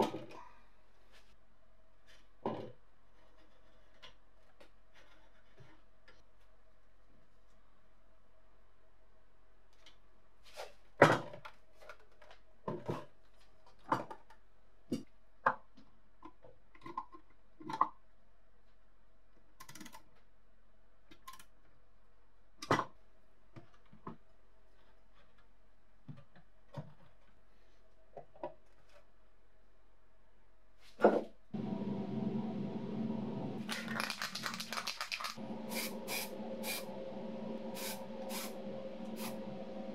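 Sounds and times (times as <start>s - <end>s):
faint steady hum: 31.6s - 39.9s.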